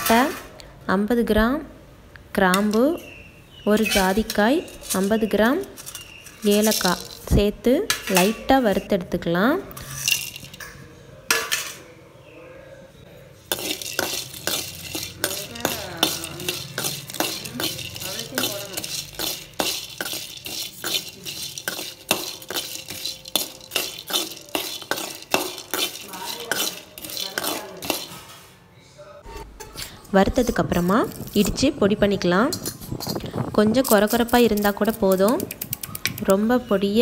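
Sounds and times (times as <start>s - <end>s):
spoon scraping spices in metal pan: 0.0s - 0.6s, 2.5s - 11.9s, 13.4s - 28.5s, 29.3s - 37.0s.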